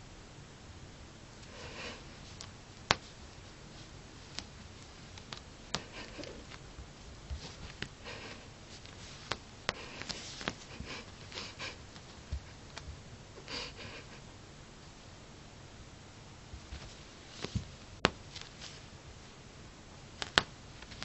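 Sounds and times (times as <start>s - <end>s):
cat rubbing on carpet: 1.4s - 12.8s, 16.6s - 18.9s.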